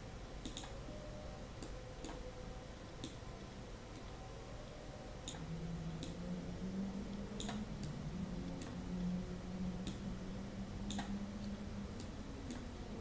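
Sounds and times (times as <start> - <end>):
low steady hum: 0.0 - 13.0
computer mouse clicking: 0.4 - 0.8, 1.6 - 2.2, 3.0 - 3.2, 5.2 - 5.4, 6.0 - 6.2, 7.1 - 8.8, 9.8 - 10.0, 10.9 - 12.7.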